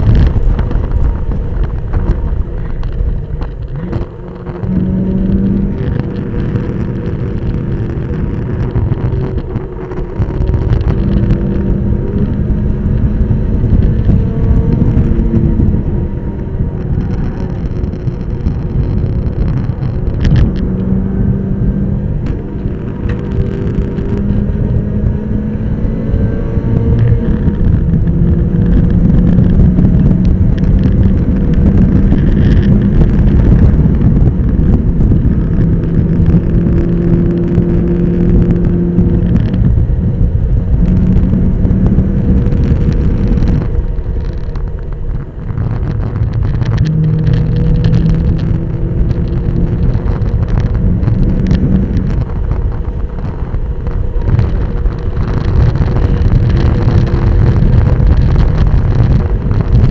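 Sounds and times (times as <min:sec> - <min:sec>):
race car engine: 0:00.0 - 0:59.9
wind and road noise: 0:00.0 - 0:59.9.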